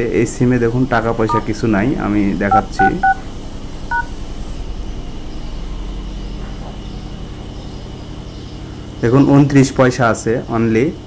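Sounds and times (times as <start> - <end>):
steady low hum: 0.0 - 11.0
keypad dual-tone beeps: 2.5 - 3.2, 3.9 - 4.1.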